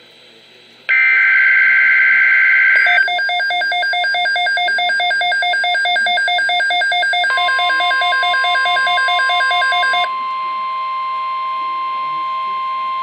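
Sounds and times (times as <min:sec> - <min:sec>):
steady warning tone: 0:00.9 - 0:13.0
two-pitch fast beeping: 0:02.8 - 0:10.9.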